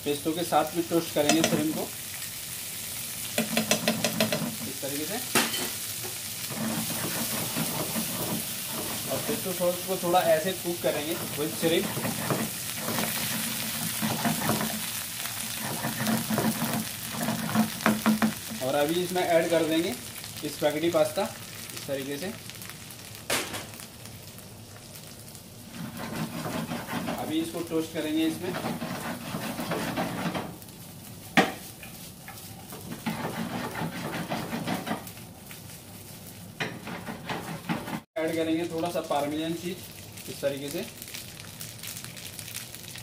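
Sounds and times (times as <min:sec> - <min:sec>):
shrimp sizzling in a frying pan: 0:00.0 - 0:43.0
wooden spatula scraping a pan: 0:03.4 - 0:05.0, 0:06.0 - 0:19.5, 0:25.7 - 0:30.6, 0:31.4 - 0:35.2, 0:36.0 - 0:38.1.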